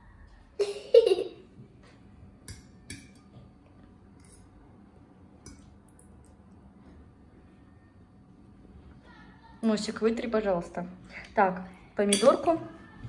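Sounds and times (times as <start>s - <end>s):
fork scraping ceramic bowl: 4.2s - 4.5s.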